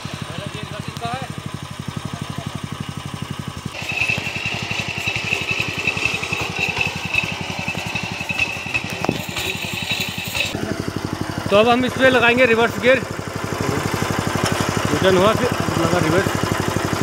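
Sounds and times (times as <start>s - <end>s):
small petrol engine running: 0.0s - 17.0s.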